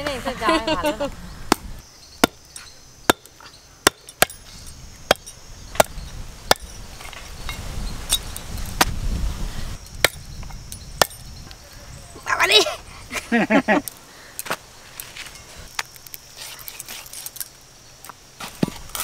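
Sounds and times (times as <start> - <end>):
cleaver chopping meat and bone: 1.5 - 2.4, 3.1 - 4.4, 5.1 - 6.7.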